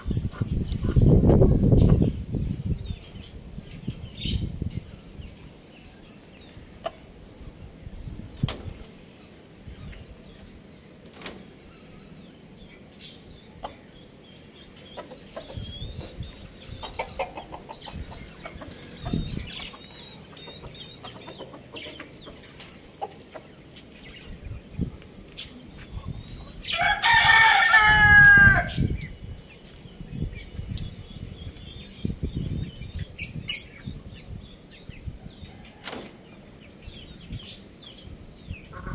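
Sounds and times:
rooster crowing: 26.7s - 28.7s.

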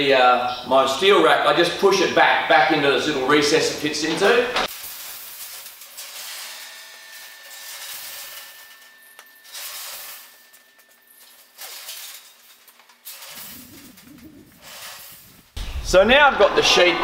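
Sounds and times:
wheeled rack rolling on concrete: 7.1s - 15.6s.

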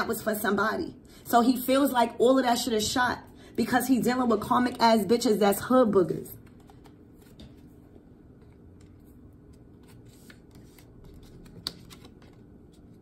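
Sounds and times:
cards being handled on table: 6.4s - 13.0s.

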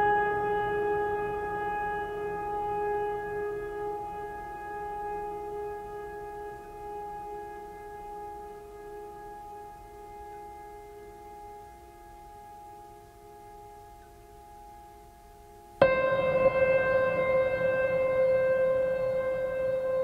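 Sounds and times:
long held musical note: 15.8s - 20.0s.

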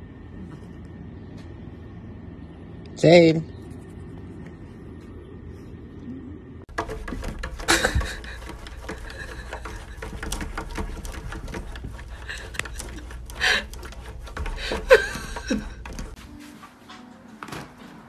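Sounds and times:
cat paws tapping on window: 6.7s - 16.2s.

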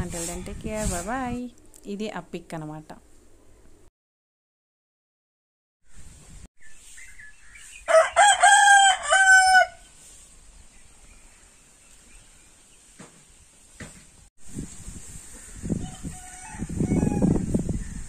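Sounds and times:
rooster crowing: 7.9s - 9.9s, 15.7s - 18.0s.

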